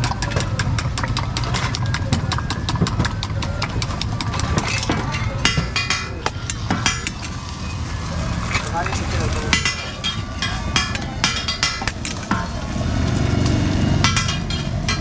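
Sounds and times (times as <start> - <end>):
spoon clattering against steel tumbler: 0.0 - 7.6, 8.9 - 12.6.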